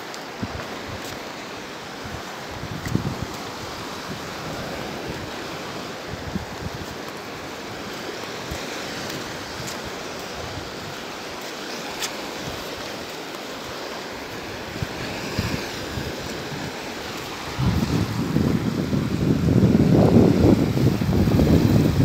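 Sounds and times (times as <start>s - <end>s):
wind buffeting microphone: 2.1s - 11.0s, 14.6s - 22.0s.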